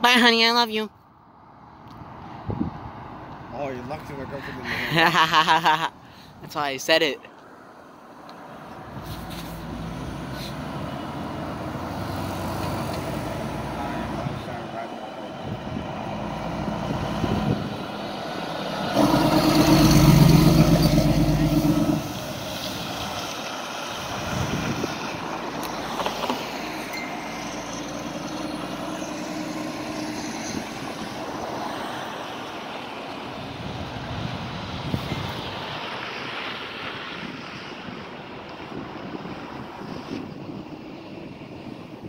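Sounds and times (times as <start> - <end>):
fire truck driving past: 7.6 - 42.0
low-pitched horn blast: 18.9 - 22.2.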